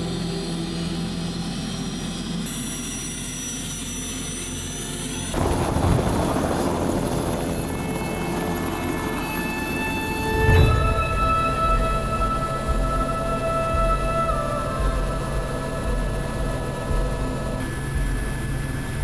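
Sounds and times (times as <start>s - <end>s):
helicopter rotor chopping: 5.3s - 19.0s.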